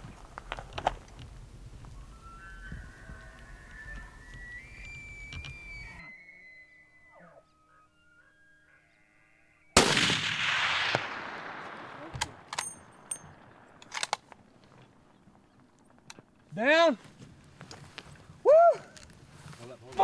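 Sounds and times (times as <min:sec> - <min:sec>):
rifle shot echoing: 0:09.8 - 0:14.2.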